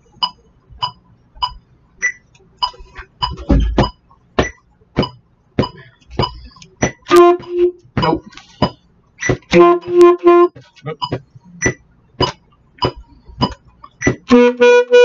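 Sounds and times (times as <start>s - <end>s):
electronic metronome ticking: 0.0s - 15.0s
alto saxophone notes: 14.3s - 15.0s.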